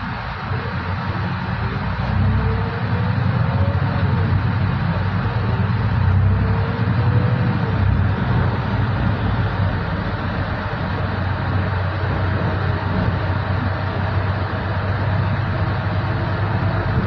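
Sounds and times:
bus engine and road rumble: 0:00.0 - 0:17.0
faint whine rising and falling: 0:00.0 - 0:17.0.

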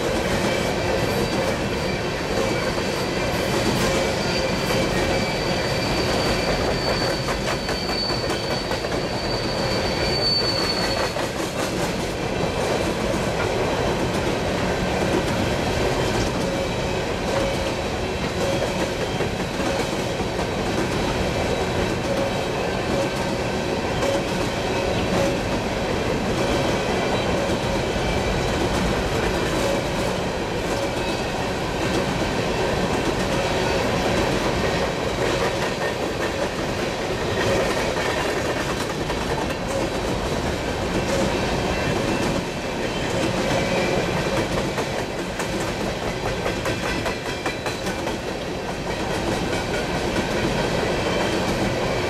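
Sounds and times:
train wheels rumbling on rails: 0:00.0 - 0:52.0
high wheel squeal: 0:03.9 - 0:11.4.

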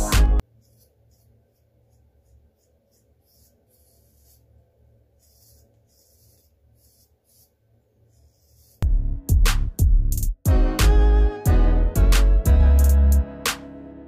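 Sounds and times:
comb scratching through beard: 0:00.4 - 0:04.6, 0:05.2 - 0:08.8.

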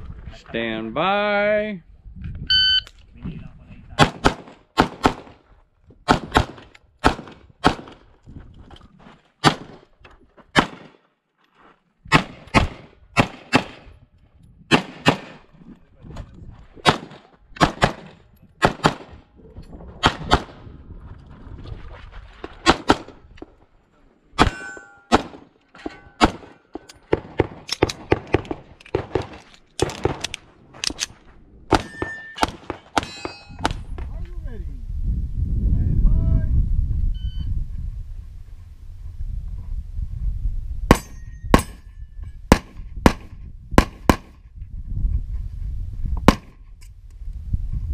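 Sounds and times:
rapid pistol gunfire: 0:04.0 - 0:05.3, 0:12.1 - 0:13.8, 0:14.7 - 0:15.4, 0:16.9 - 0:19.2, 0:42.5 - 0:44.4
metallic ring of struck target: 0:24.4 - 0:25.2, 0:31.7 - 0:33.8, 0:40.9 - 0:42.2.

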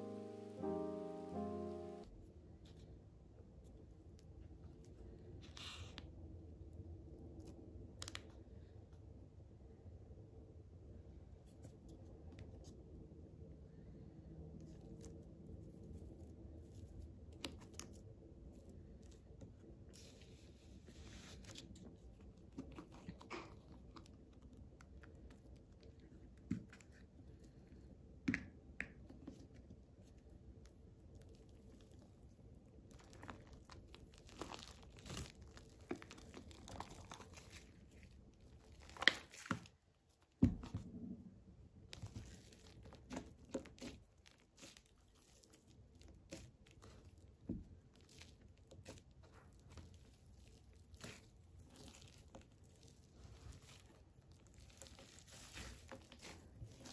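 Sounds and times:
foam slime squishing and snapping: 0:28.4 - 0:40.7, 0:41.8 - 0:56.9.

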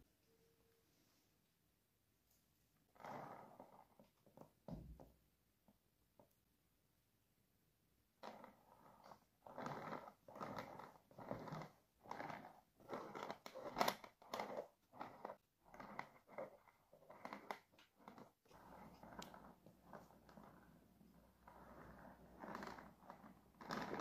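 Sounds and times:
metal spatula scraping frosting: 0:08.2 - 0:24.0.

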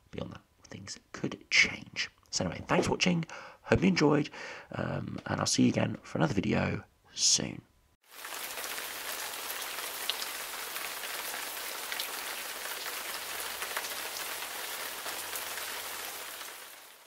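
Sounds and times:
steady rain hissing: 0:08.0 - 0:17.0
raindrops ticking: 0:08.1 - 0:16.6.

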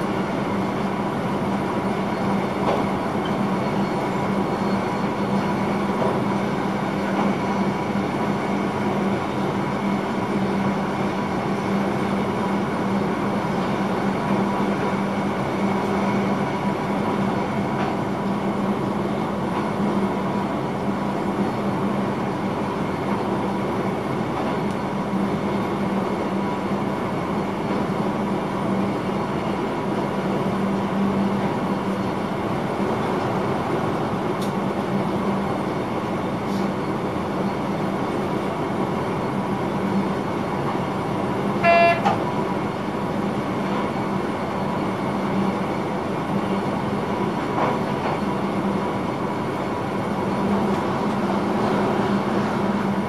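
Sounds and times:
electric train running at speed: 0:00.0 - 0:53.0
train horn toot: 0:41.6 - 0:42.2.

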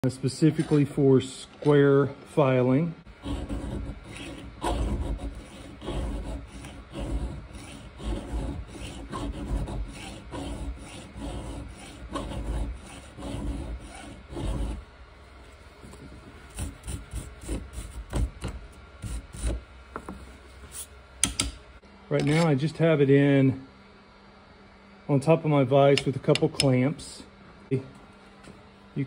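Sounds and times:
file rasping on chainsaw chain: 0:03.2 - 0:14.8.

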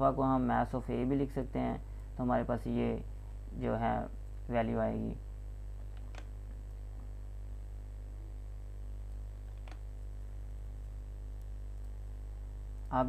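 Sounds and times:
low electrical hum: 0:00.0 - 0:13.0
computer mouse clicks: 0:05.8 - 0:06.8, 0:09.0 - 0:09.9, 0:11.4 - 0:12.0.

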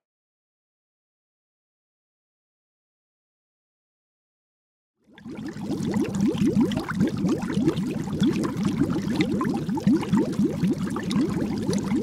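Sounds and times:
underwater bubbling: 0:05.0 - 0:12.0.

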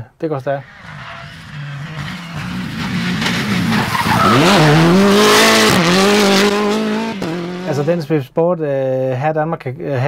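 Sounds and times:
rally car engine revving: 0:00.5 - 0:08.0.

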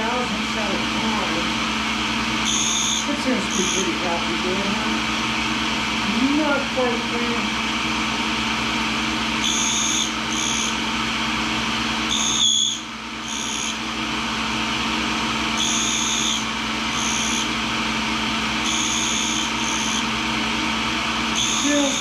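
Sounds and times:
grinder running: 0:00.0 - 0:22.0
high-pitched grinding whine: 0:00.0 - 0:22.0.

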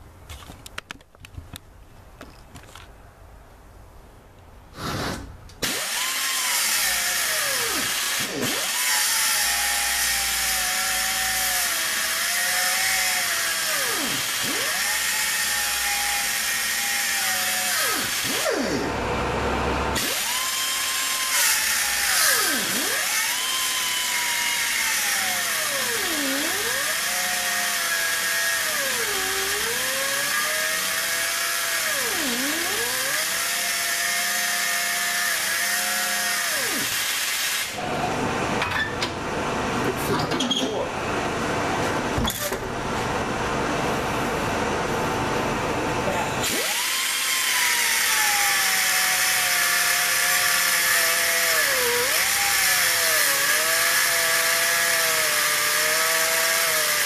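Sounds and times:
angle grinder cutting steel: 0:05.6 - 0:19.2, 0:19.8 - 0:37.8, 0:46.4 - 0:57.0.

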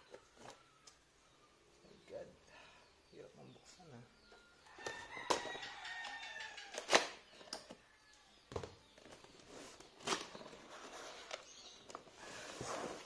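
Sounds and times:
cardboard rustling: 0:09.0 - 0:13.0.

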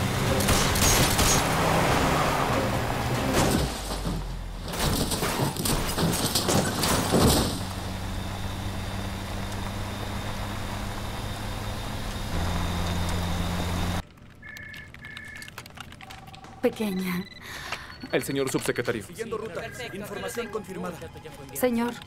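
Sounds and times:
car engine running at speed: 0:00.0 - 0:04.6, 0:06.3 - 0:14.0
car crashing and rolling over: 0:00.2 - 0:08.3.

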